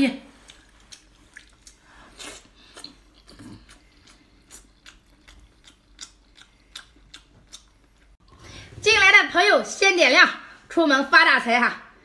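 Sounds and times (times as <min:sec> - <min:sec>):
wet chewing clicks and smacks: 0:00.5 - 0:08.2.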